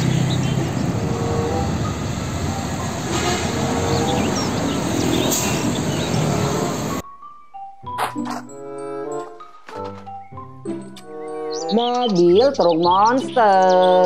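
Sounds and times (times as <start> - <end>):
faint birds chirping: 0.0 - 1.4, 3.7 - 7.0, 9.8 - 14.0
diesel truck engine and tyres: 0.0 - 7.0.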